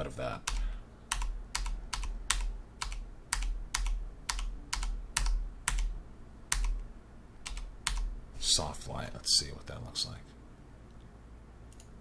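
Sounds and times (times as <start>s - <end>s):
computer keyboard keys tapped: 0.4s - 6.8s, 7.4s - 8.1s.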